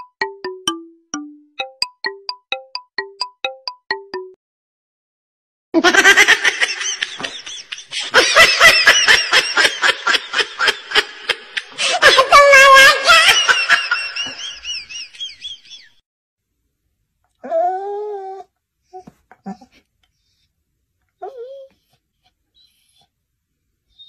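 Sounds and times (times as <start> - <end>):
high-pitched laughter: 5.8 - 15.9.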